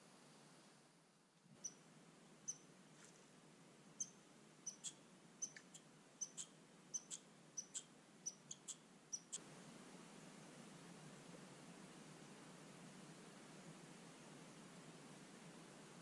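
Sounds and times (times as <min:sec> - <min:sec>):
small bird chip calls: 0:01.6 - 0:01.8, 0:02.4 - 0:02.7, 0:04.0 - 0:09.4.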